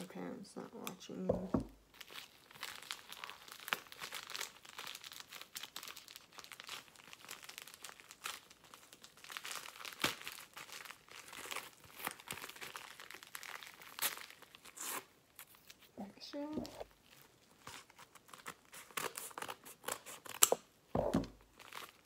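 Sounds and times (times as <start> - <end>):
envelope crinkling and tearing: 1.9 - 15.9, 16.8 - 20.7, 21.4 - 22.0
sharp paper snap: 18.8 - 20.7.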